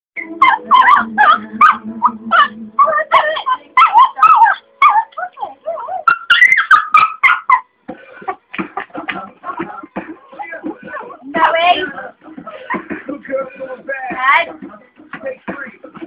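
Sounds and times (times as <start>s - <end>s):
small dog yipping and whining: 0.2s - 7.7s.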